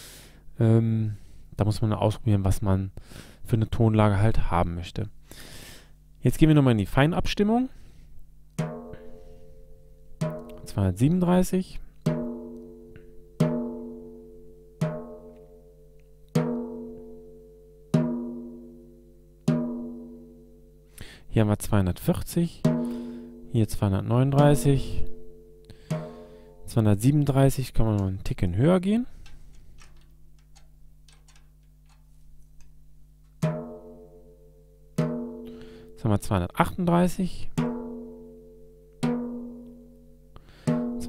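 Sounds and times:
drumstick tapping snare drum: 8.6s - 9.1s, 10.2s - 10.7s, 12.0s - 13.8s, 22.6s - 23.1s, 25.8s - 26.3s
drum key ticking: 10.2s - 10.7s, 29.2s - 33.5s.

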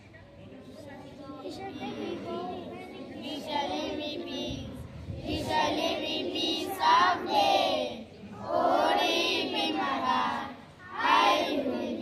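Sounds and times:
children singing together: 3.2s - 12.0s.

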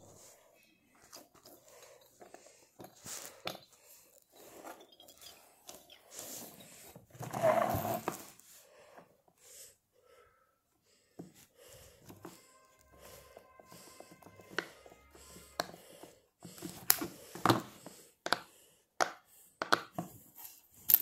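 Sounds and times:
fidget toys rustling: 0.1s - 8.5s.

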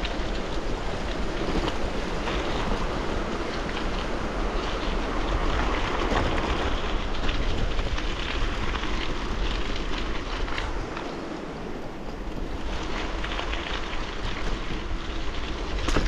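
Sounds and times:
bicycle tyres rolling on gravel: 0.0s - 16.0s
wind noise on microphone: 0.0s - 16.0s.

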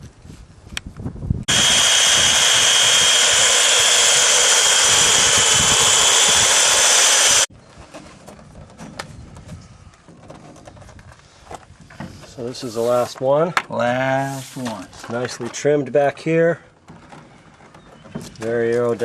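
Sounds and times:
power tool cutting plastic: 1.5s - 7.5s.

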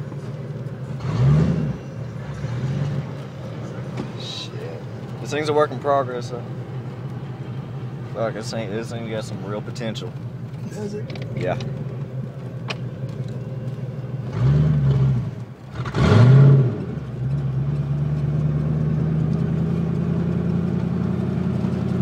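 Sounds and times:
car engine revving: 0.2s - 22.0s.

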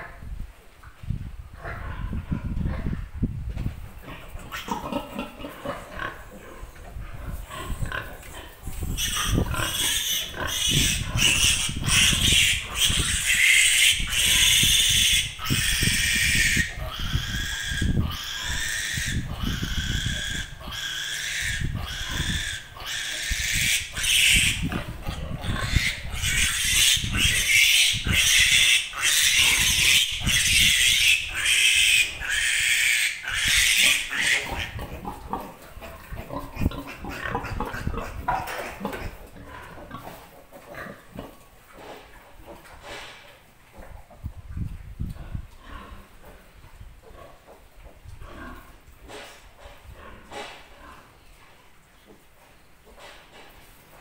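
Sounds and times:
piglet squealing: 8.9s - 24.7s, 25.4s - 34.8s.

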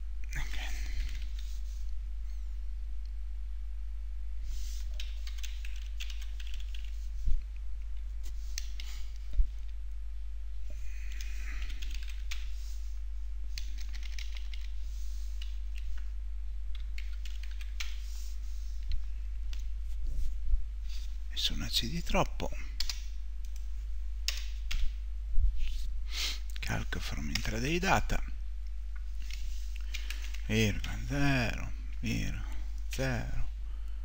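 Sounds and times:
steady low hum: 0.0s - 34.0s
keyboard typing: 0.9s - 1.5s, 5.0s - 7.0s, 11.1s - 12.5s, 13.6s - 14.8s, 16.7s - 18.0s, 29.2s - 31.0s.

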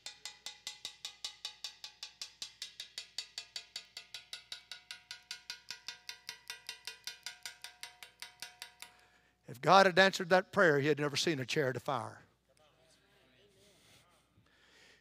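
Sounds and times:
rapid metallic ticking: 0.0s - 9.0s.

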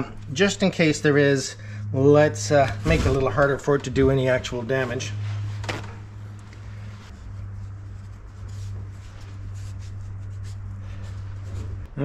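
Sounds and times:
steady low hum: 0.0s - 12.0s
paper towel rustling: 2.8s - 12.0s.

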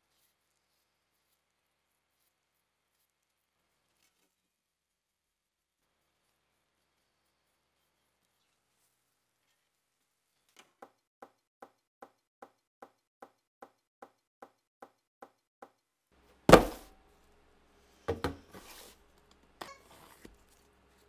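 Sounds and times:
knife cutting taped box: 16.5s - 16.9s
knocks: 16.5s - 16.9s
thump on wooden table: 16.5s - 16.9s, 18.1s - 18.5s.

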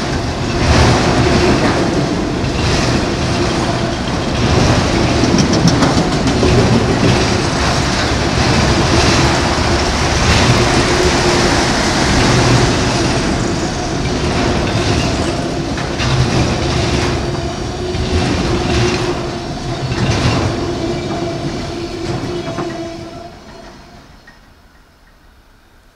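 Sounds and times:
wheels clacking over rail joints: 0.0s - 25.2s
freight train rumbling past: 0.0s - 25.9s.

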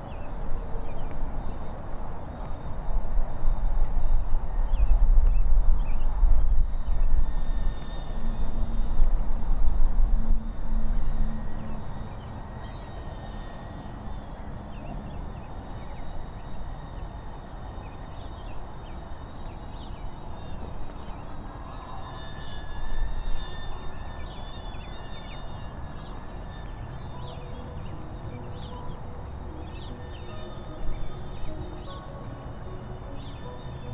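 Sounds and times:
faint high whine: 0.0s - 33.9s
wind rumble on microphone: 0.0s - 33.9s
birds chirping: 10.4s - 33.9s.

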